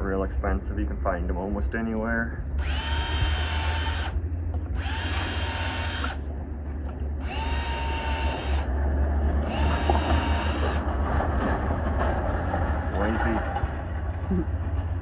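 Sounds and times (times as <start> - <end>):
low hum: 0.0 - 15.0
cordless drill whining: 2.6 - 6.2, 7.2 - 8.7, 9.4 - 10.8.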